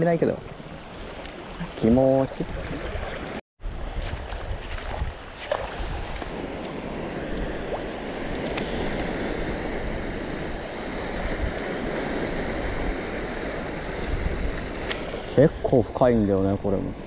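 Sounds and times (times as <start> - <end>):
surf washing on reef: 0.0 - 17.0
wind buffeting microphone: 0.6 - 17.0.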